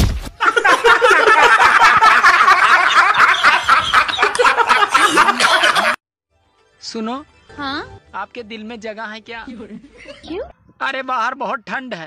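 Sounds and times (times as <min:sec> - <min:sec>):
crowd laughing: 0:00.4 - 0:06.0, 0:09.5 - 0:10.4.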